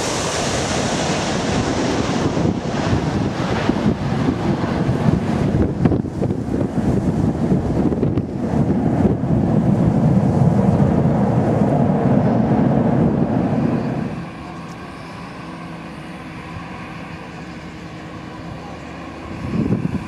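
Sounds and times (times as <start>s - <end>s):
jet engine whine and hum: 0.0s - 20.0s
jet engines reverse thrust roar: 0.0s - 20.0s.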